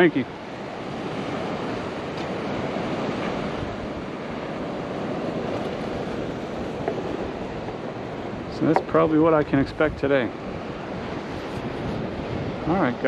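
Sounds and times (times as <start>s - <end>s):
waves breaking on beach: 0.0s - 13.0s
wind on microphone: 0.8s - 13.0s.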